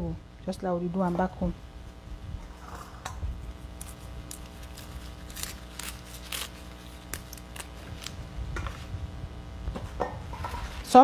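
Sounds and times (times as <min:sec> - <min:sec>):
leaves ripping: 0:03.4 - 0:08.9.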